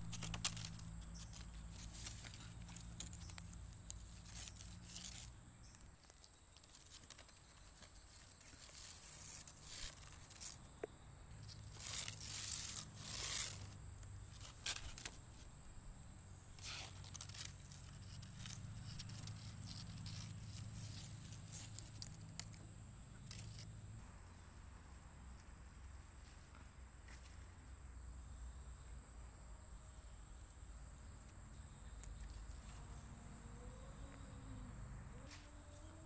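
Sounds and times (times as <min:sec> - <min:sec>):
leaf scraping over asphalt: 0:00.0 - 0:05.4, 0:06.2 - 0:10.7, 0:11.4 - 0:15.5, 0:16.5 - 0:22.1.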